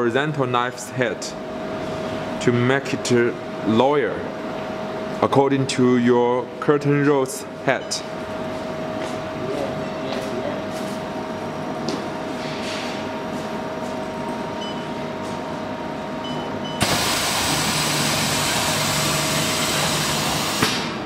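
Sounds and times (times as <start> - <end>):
packing machine humming: 13.2 - 21.0
loud rushing hiss: 16.8 - 21.0.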